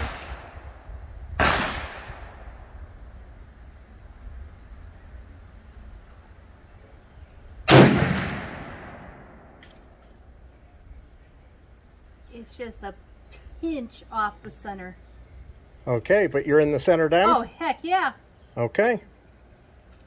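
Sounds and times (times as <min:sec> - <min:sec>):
rifle shots with echo: 0:00.0 - 0:00.6, 0:01.4 - 0:02.6, 0:07.7 - 0:09.6.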